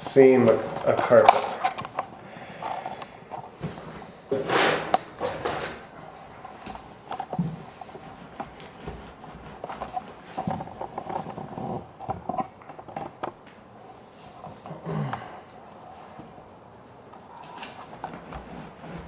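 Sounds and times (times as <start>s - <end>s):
carpet rustling and scraping: 0.4s - 13.2s, 17.2s - 19.0s.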